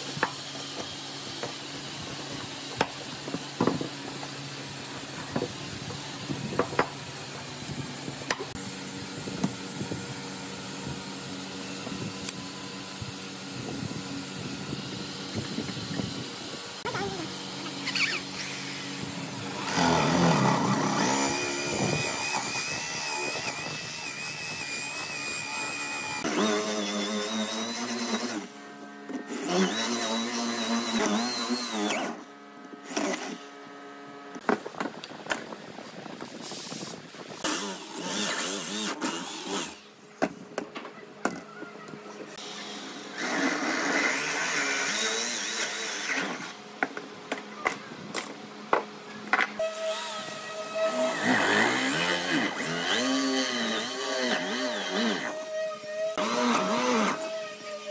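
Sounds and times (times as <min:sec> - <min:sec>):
electric drill boring into wood: 0:11.1 - 0:28.6, 0:29.3 - 0:33.4, 0:37.4 - 0:39.9, 0:42.4 - 0:46.6, 0:49.6 - 0:57.9.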